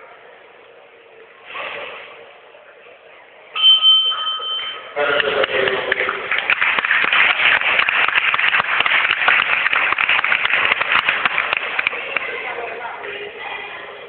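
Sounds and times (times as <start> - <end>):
crowd applauding: 5.0 - 13.3.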